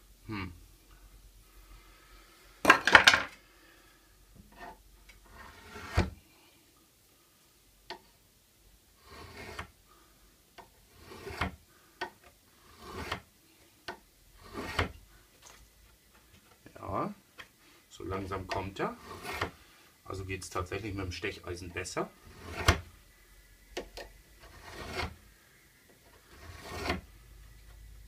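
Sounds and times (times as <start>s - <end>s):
chisel scraping metal: 4.6s - 6.0s, 9.0s - 9.7s, 10.9s - 11.6s, 12.6s - 13.2s, 14.4s - 14.9s, 18.5s - 19.6s, 22.2s - 22.8s, 24.4s - 25.2s, 26.2s - 27.1s.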